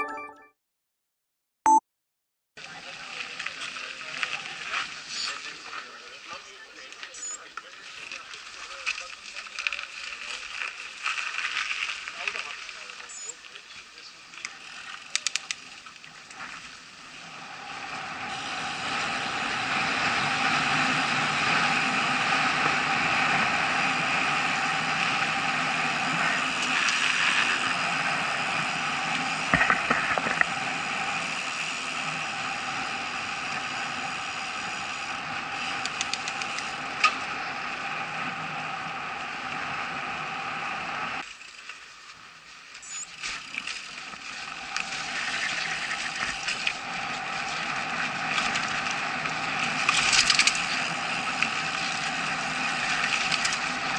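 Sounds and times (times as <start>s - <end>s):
bike ticking and rattling: 14.3s - 40.5s, 41.1s - 53.9s
bike tyre and air rush: 16.2s - 53.9s.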